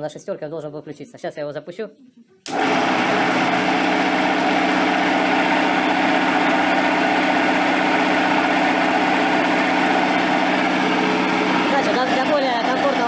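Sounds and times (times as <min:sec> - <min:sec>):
piston air compressor running: 0:02.5 - 0:13.0.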